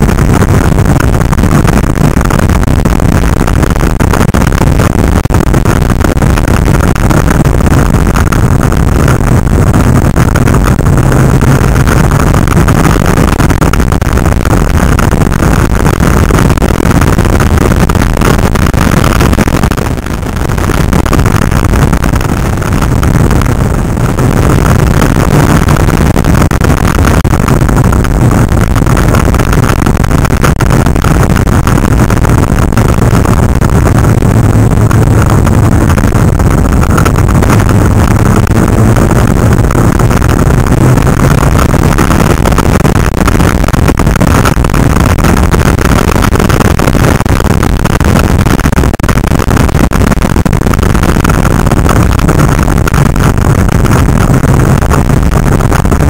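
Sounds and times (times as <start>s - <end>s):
motorcycle engine running: 0.0s - 43.1s
wind noise on microphone: 0.0s - 56.0s.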